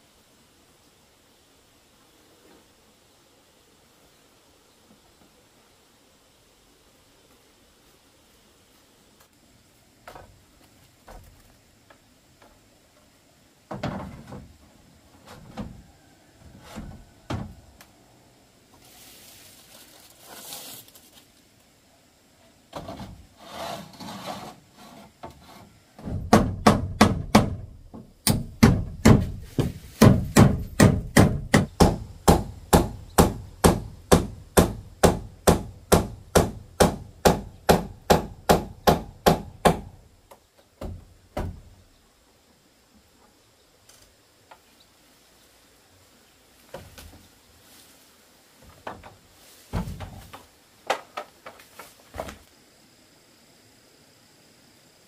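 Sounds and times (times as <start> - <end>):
roofing sheets scraping: 18.8 - 21.3, 22.7 - 26.3, 28.8 - 30.8
hammer driving nails into roofing: 26.0 - 29.4, 30.0 - 40.0.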